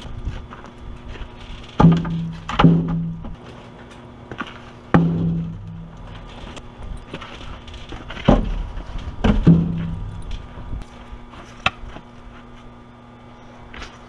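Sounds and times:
wooden boards knocking: 1.8s - 3.4s, 5.0s - 5.9s, 8.2s - 10.1s.

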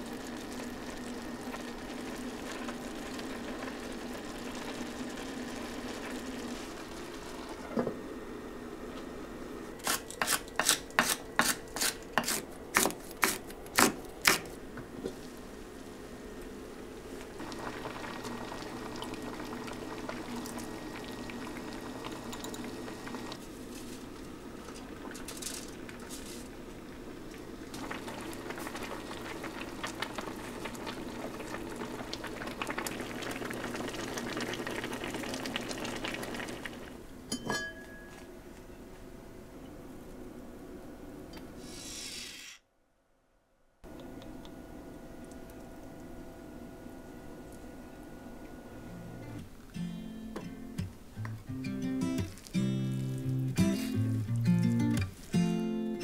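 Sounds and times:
pot of soup bubbling: 0.0s - 7.7s, 17.4s - 23.4s, 26.8s - 37.0s.

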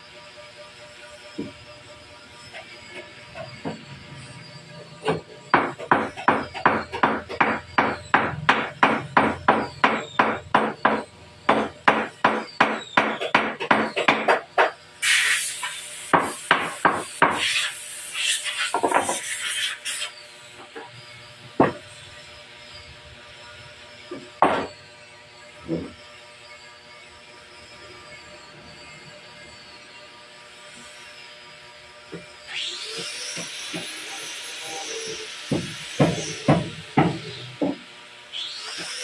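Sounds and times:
hammer striking wooden frame: 5.0s - 14.8s, 35.5s - 37.8s.

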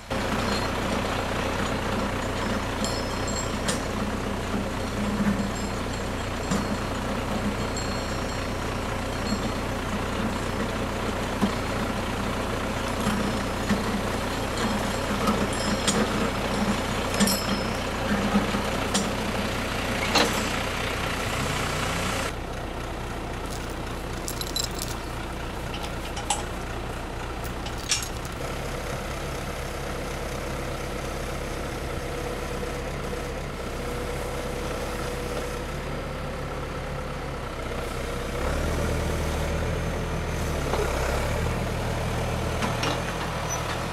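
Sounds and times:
tractor engine running: 0.0s - 43.9s
chain clicking and clinking: 14.6s - 17.8s, 23.5s - 26.6s, 27.4s - 28.4s.

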